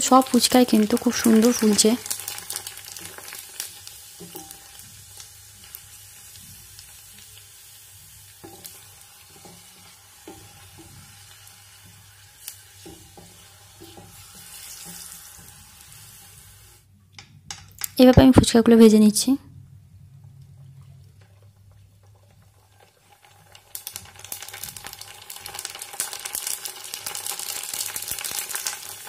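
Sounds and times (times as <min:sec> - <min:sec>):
food deep-frying in hot oil: 0:00.0 - 0:18.2, 0:21.1 - 0:29.0
wooden spatula knocking pot: 0:17.1 - 0:18.3.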